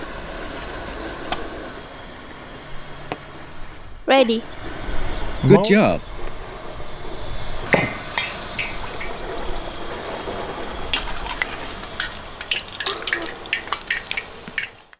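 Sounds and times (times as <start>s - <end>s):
faint high whine: 0.0s - 14.7s
water boiling and bubbling: 4.5s - 14.9s
clicks of stirring in a pot: 10.9s - 14.9s
dumplings splashing into water: 11.0s - 14.9s.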